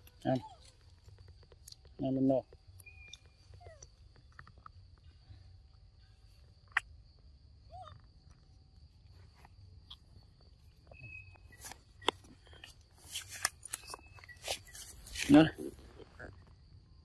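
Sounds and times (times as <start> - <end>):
rustling: 9.0 - 16.4
short squeak: 10.9 - 12.2, 13.7 - 15.3.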